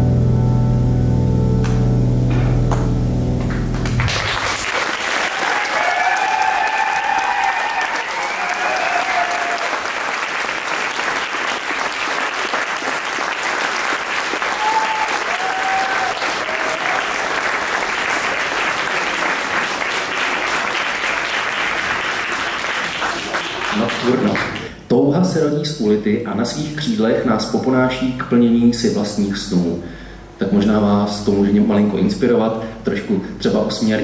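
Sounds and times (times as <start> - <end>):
audience applauding: 3.4 - 24.7.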